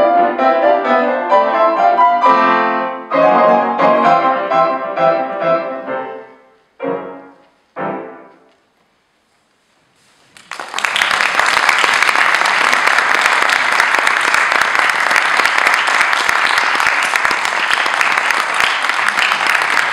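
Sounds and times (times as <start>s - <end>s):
piano piece: 0.0s - 8.9s
audience applause: 10.4s - 19.9s.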